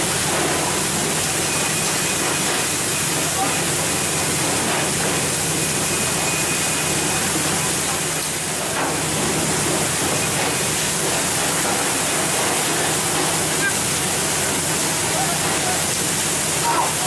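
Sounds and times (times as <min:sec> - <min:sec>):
boat engine hum: 0:00.0 - 0:17.0
water spraying along hull: 0:00.0 - 0:17.0.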